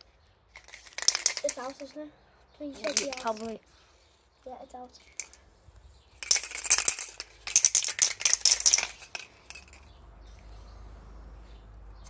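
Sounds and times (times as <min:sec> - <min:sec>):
spray can ball rattling: 0:00.5 - 0:02.0, 0:02.8 - 0:03.6, 0:04.9 - 0:10.0.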